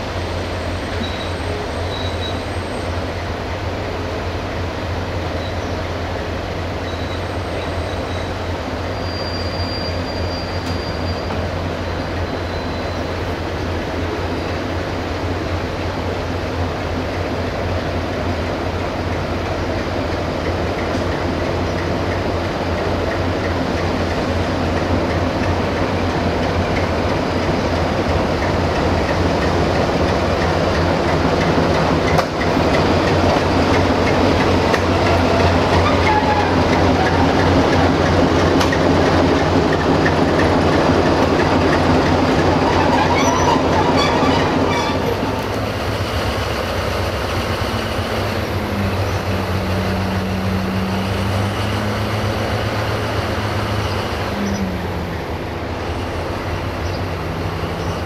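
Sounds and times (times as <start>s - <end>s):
diesel locomotive engine: 0.0s - 58.0s
wheels clattering over rail joints: 19.0s - 49.4s.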